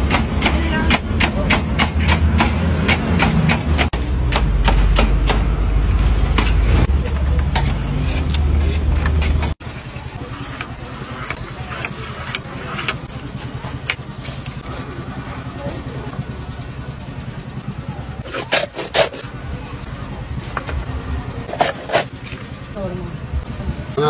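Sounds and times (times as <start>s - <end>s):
metal scraper chopping on steel tray: 0.0s - 5.5s, 7.4s - 9.6s, 18.2s - 19.3s
steady low hum: 0.1s - 24.0s.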